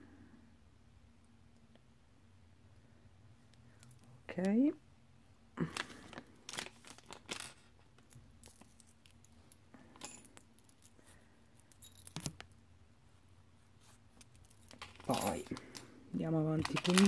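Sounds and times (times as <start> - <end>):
metal rings clicking and clinking: 11.6 - 12.4.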